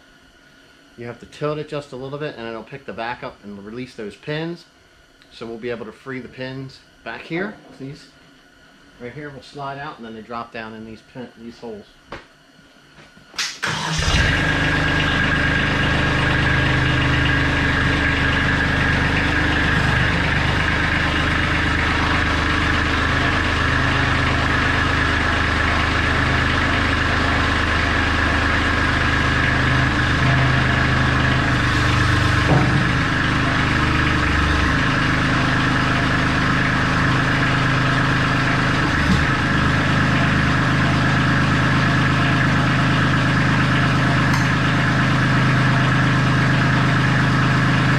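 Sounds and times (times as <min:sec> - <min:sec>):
tractor diesel engine idling: 0:13.6 - 0:47.9.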